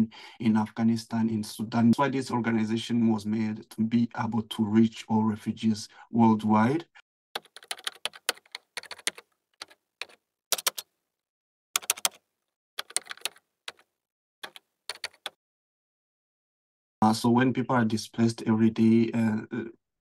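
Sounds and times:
keyboard key clacks: 0:07.4 - 0:10.9, 0:14.4 - 0:15.4.

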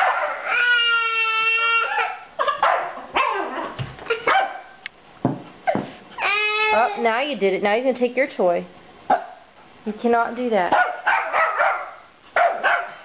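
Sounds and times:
puppy barking and yipping: 0:00.0 - 0:00.7, 0:01.8 - 0:04.7, 0:10.8 - 0:13.0.

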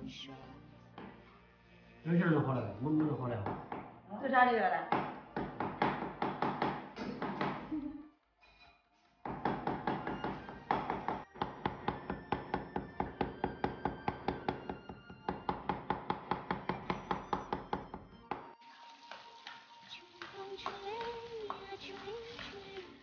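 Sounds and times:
cleaver chopping on cutting board: 0:09.3 - 0:17.8.

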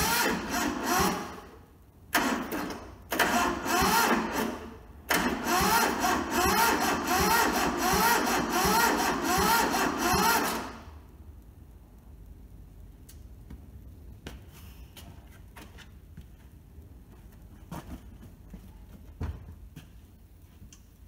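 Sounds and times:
diesel engine cranking: 0:00.0 - 0:10.9.

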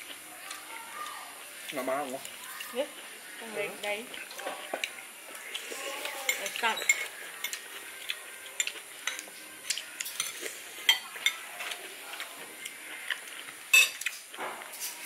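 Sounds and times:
faint sizzling of frying food: 0:00.0 - 0:15.0
metal utensil clinking against pan: 0:13.7 - 0:14.0.

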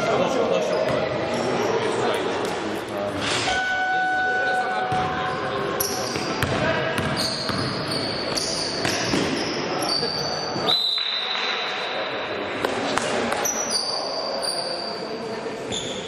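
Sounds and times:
players' voices: 0:00.0 - 0:16.0
shoe squeaks: 0:03.3 - 0:11.3, 0:13.4 - 0:16.0
basketball bouncing on court: 0:06.0 - 0:09.5.

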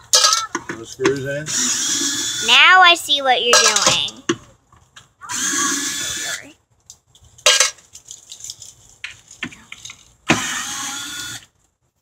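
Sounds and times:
power drill whirring: 0:01.5 - 0:02.5, 0:05.3 - 0:06.5, 0:10.3 - 0:11.5.

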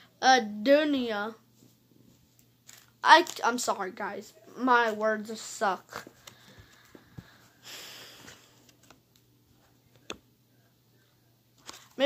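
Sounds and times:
soft rustle of binder: 0:08.1 - 0:10.1, 0:11.6 - 0:12.0.

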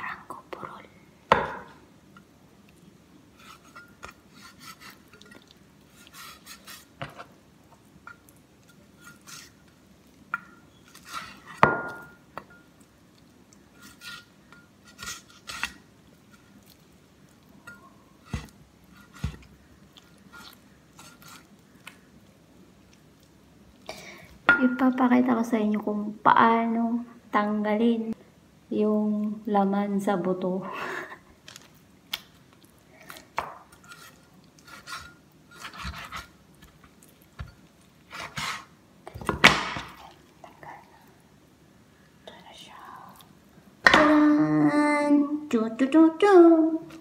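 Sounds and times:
cleaver scraping chicken and bone: 0:03.4 - 0:06.9, 0:33.8 - 0:36.3, 0:38.1 - 0:38.7.

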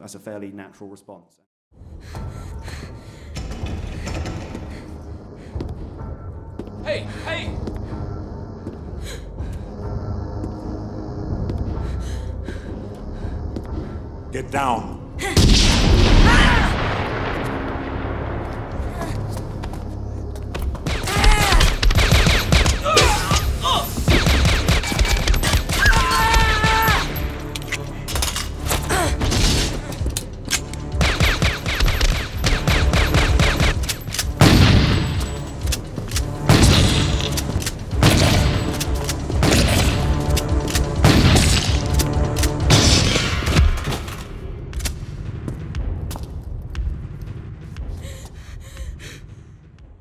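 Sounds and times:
background music: 0:01.7 - 0:50.0
gunfire: 0:20.8 - 0:23.4, 0:24.1 - 0:26.0, 0:30.9 - 0:35.3, 0:36.4 - 0:44.1.

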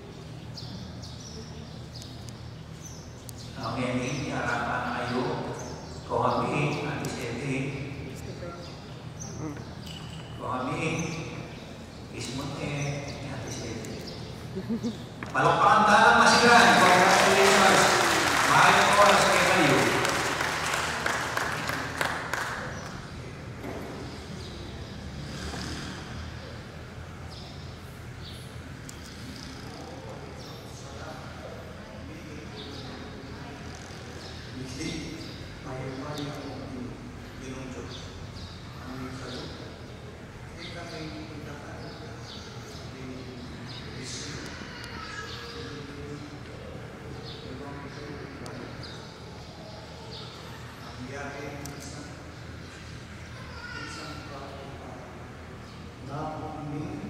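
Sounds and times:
steady low hum: 0:00.0 - 0:44.8
man reading into a microphone: 0:03.5 - 0:08.1, 0:12.1 - 0:14.1, 0:15.4 - 0:20.1
crowd applauding: 0:16.3 - 0:23.1.

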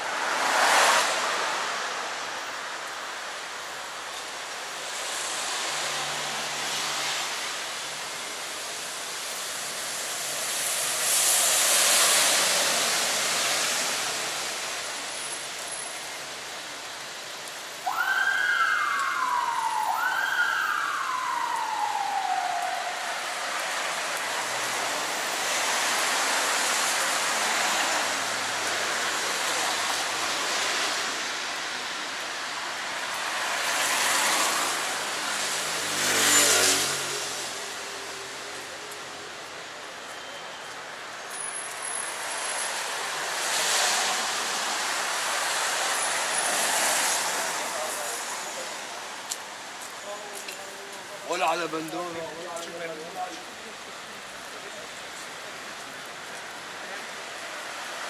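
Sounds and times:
tyres hissing on wet road: 0:00.0 - 0:58.0
siren wailing: 0:17.8 - 0:23.6.

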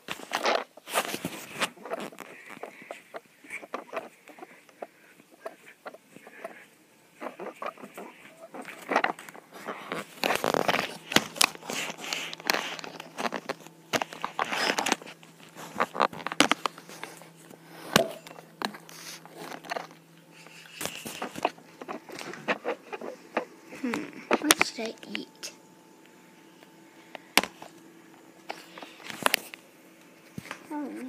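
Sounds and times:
faint low hum: 0:00.0 - 0:31.0
phone handling rustles and clicks: 0:08.0 - 0:23.5.

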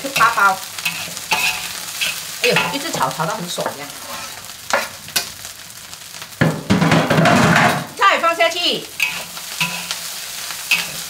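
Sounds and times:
spatula scraping a wok: 0:00.0 - 0:05.3, 0:08.9 - 0:11.0
rice sizzling in a wok: 0:00.0 - 0:11.0.

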